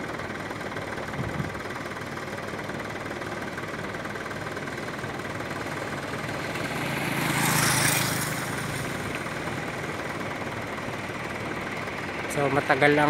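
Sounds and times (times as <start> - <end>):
low engine hum: 0.0 - 13.0
vehicle passing: 6.0 - 10.1.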